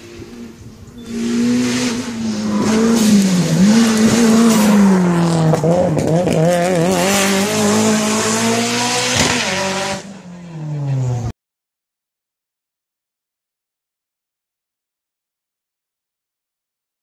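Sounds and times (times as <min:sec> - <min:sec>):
racing car engine revving: 0:00.0 - 0:11.3.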